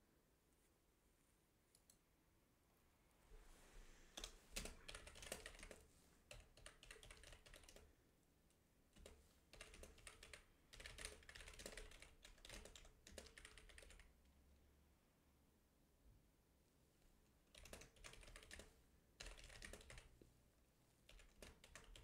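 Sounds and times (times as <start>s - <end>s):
computer keyboard typing: 4.2s - 7.9s, 8.9s - 14.2s, 17.5s - 20.2s, 21.1s - 22.0s.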